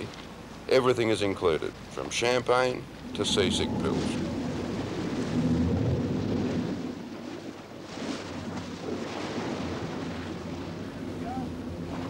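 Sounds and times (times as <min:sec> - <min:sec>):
boat engine rumble: 0:00.0 - 0:12.0
water rushing along hull: 0:00.0 - 0:12.0
wind on microphone: 0:02.6 - 0:12.0.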